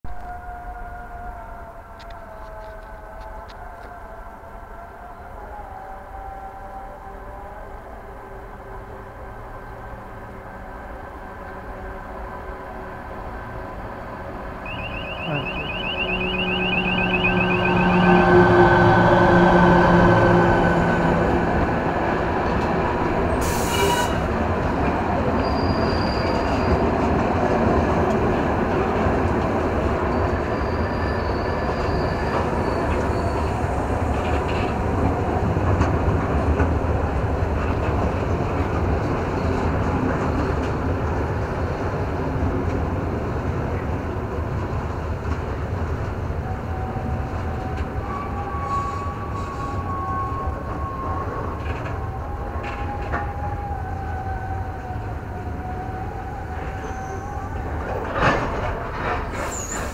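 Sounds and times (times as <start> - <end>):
high wheel squeals: 14.6 - 19.0, 25.4 - 26.9, 30.1 - 33.8, 48.0 - 51.4, 56.5 - 57.8, 59.2 - 59.9
steel wheels rumbling on rail: 17.4 - 59.9.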